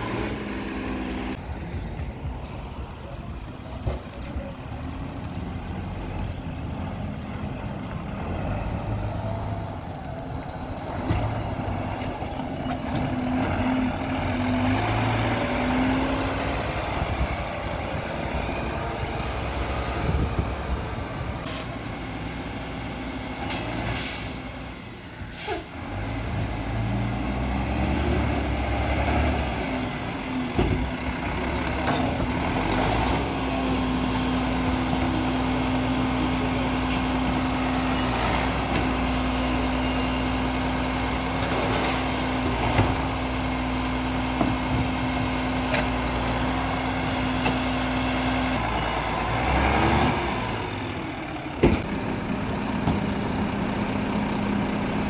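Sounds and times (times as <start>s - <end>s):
diesel engine running: 0.0s - 55.0s
air brake hiss: 23.8s - 24.5s, 25.3s - 25.8s.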